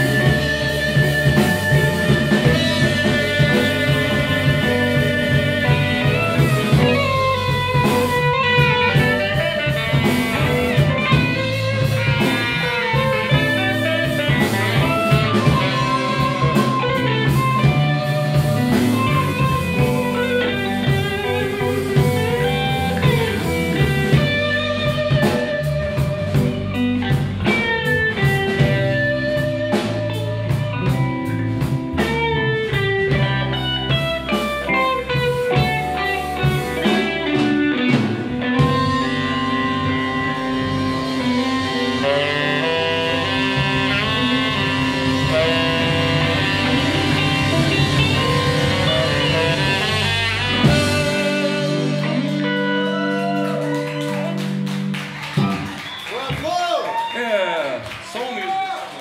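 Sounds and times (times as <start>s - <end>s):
electric guitar lead: 0.0s - 56.4s
bass guitar: 0.0s - 56.6s
drums: 0.0s - 59.0s.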